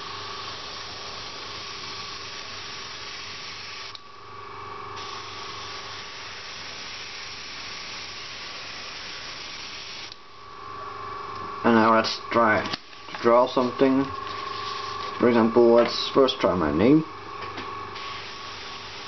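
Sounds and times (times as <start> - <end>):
airbrush spraying hiss: 0.0 - 4.0, 5.0 - 10.1, 13.4 - 15.2, 18.0 - 19.0
faint steady hum: 0.0 - 19.0.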